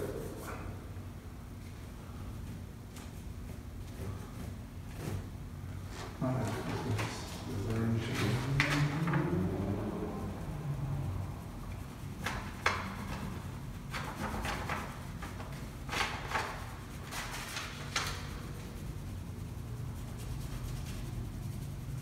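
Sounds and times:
low room hum: 0:00.0 - 0:22.0
oil pastel rubbing on paper: 0:05.9 - 0:22.0.

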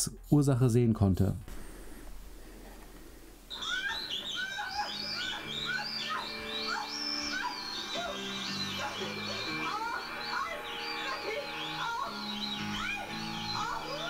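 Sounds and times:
high-pitched bat squeaks: 0:03.5 - 0:14.0.

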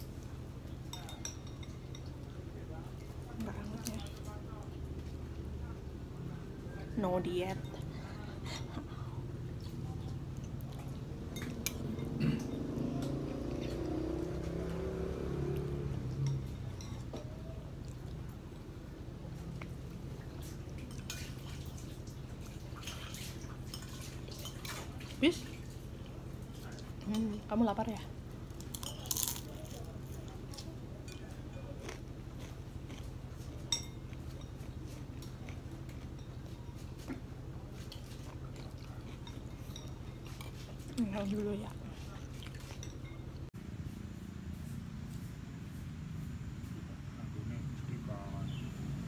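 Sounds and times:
metal spoon tapping in a bowl: 0:00.9 - 0:02.1.

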